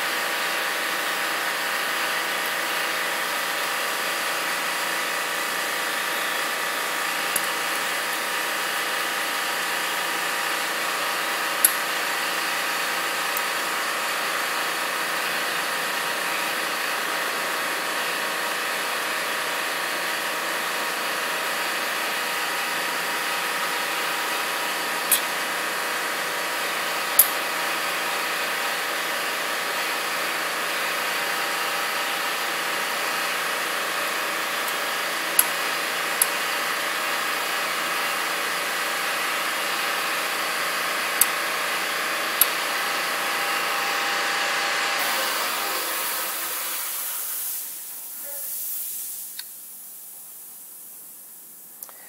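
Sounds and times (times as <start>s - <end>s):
air compressor running: 0.0s - 52.0s
short hiss of air: 46.0s - 49.7s.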